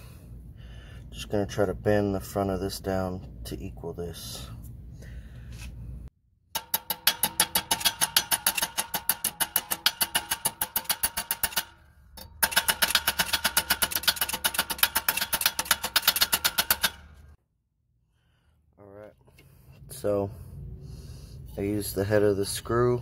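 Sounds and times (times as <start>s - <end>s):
rapid metal tapping on sheet steel: 6.5s - 17.3s.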